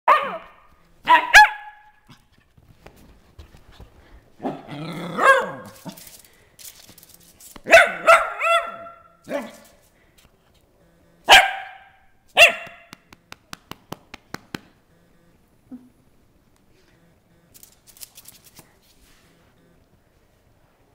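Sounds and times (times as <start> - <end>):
dog barking: 0.1 - 2.2, 4.4 - 5.8, 7.7 - 9.6, 11.3 - 12.9
claws clicking on tile floor: 5.6 - 7.7, 9.2 - 10.3, 17.5 - 19.0.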